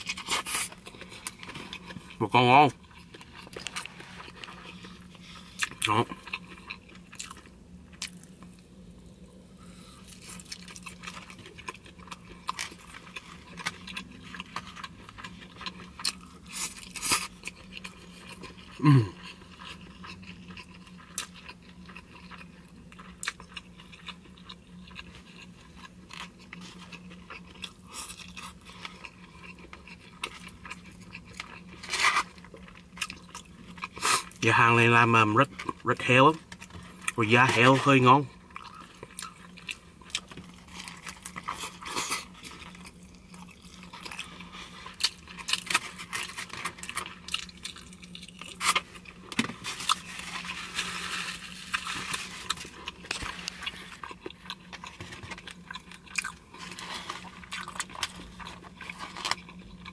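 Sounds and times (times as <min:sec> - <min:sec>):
chewing food: 0:00.0 - 0:09.1, 0:09.7 - 0:59.9
steady low hum: 0:00.0 - 0:59.9.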